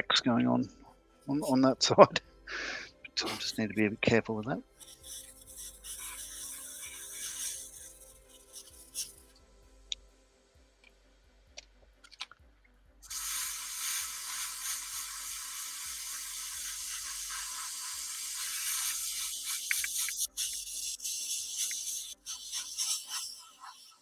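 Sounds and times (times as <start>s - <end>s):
steady hiss: 2.5s - 9.8s, 13.0s - 24.0s.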